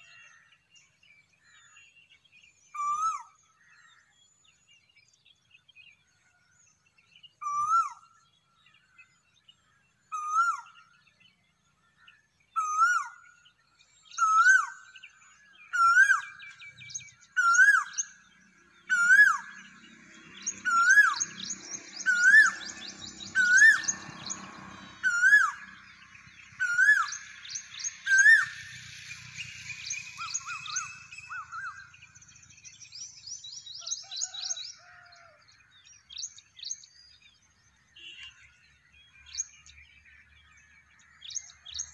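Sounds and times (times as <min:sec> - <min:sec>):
small birds twittering: 0:00.0 - 0:41.9.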